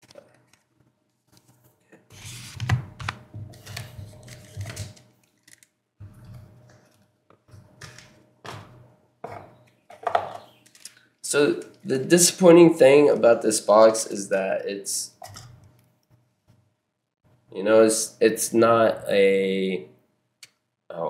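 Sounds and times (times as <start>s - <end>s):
cards and cardboard box rustling: 3.4s - 5.6s.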